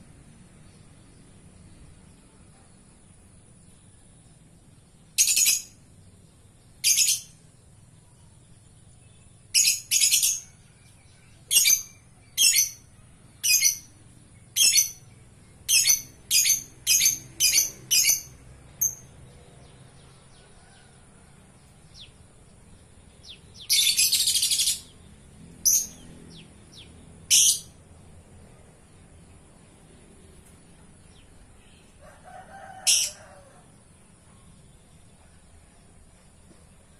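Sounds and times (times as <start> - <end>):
lovebird shrill calls: 5.2 - 5.7.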